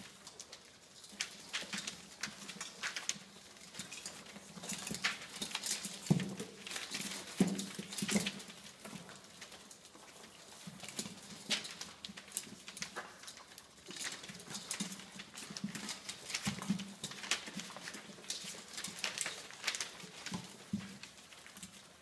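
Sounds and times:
puppies crunching kibble: 0.0 - 22.0
paws shuffling on newspaper: 9.2 - 22.0.

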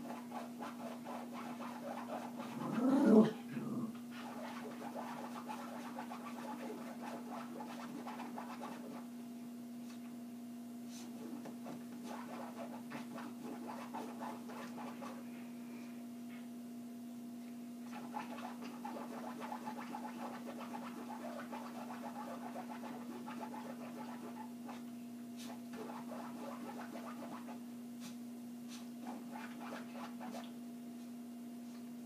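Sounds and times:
dog scratching in fabric: 0.0 - 2.8, 4.1 - 9.1, 10.9 - 15.3, 17.9 - 30.5
steady low hum: 6.8 - 32.0.

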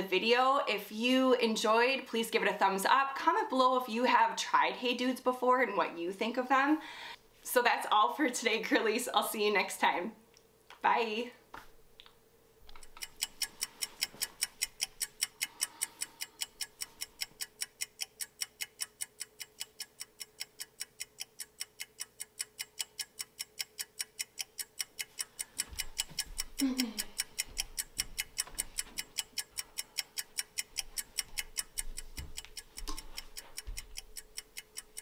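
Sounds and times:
fast even ticking: 12.7 - 35.0.

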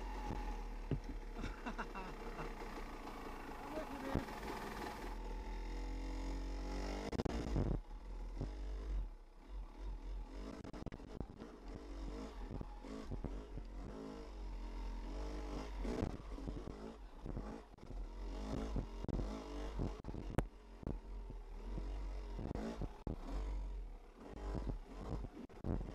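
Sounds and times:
dirt bike engine revving: 3.4 - 25.9.

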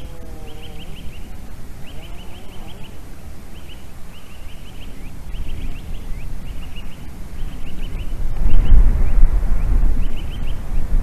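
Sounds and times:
eagle yelping calls: 0.0 - 5.0
wind on microphone: 0.0 - 11.0.

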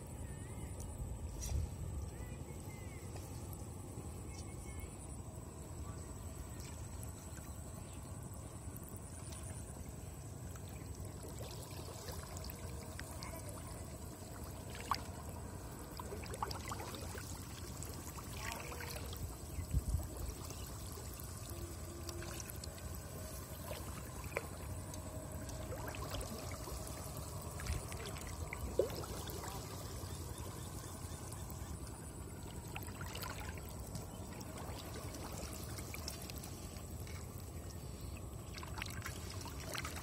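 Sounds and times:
water splashes: 8.8 - 40.0
shallow water sloshing: 8.9 - 40.0.

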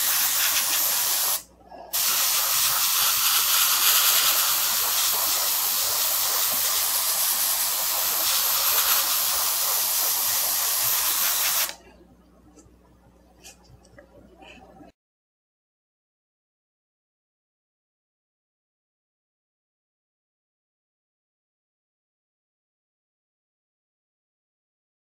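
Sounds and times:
airbrush hiss of compressed air: 0.0 - 11.8.

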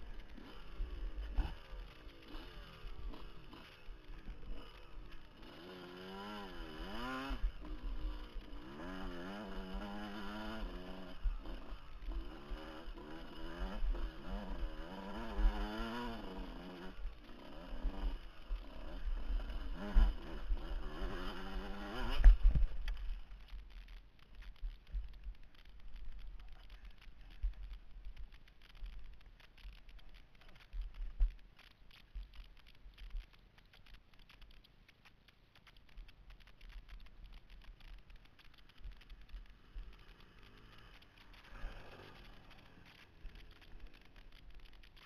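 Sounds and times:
dirt bike engine revving: 0.0 - 23.9, 37.3 - 45.0.

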